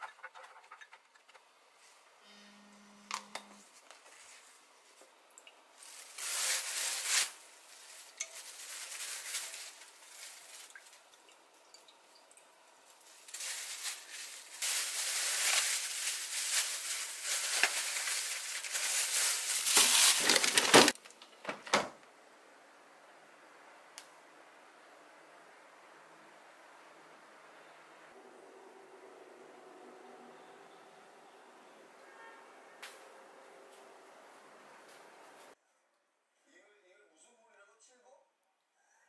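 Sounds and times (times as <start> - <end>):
food crackling: 5.4 - 21.2.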